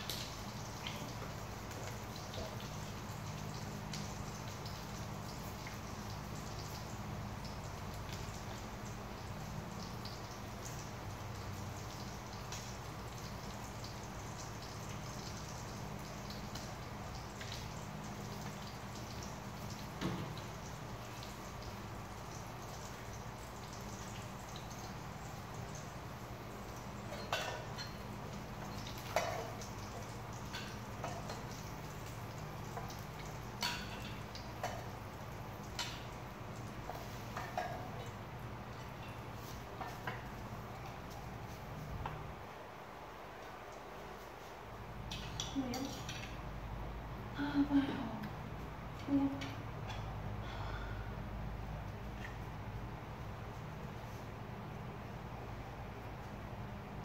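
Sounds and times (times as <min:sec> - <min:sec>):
meat sizzling in oil: 0:00.0 - 0:41.9
low steady hum: 0:00.0 - 0:57.0.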